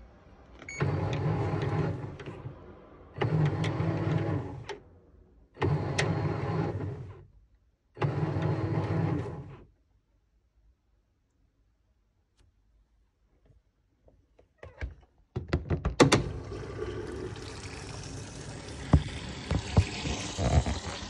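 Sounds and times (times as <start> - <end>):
washing machine drum spinning: 16.1 - 21.0.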